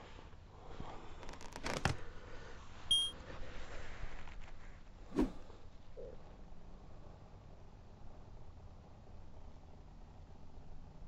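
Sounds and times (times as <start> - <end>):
short high electronic beep: 2.9 - 3.1.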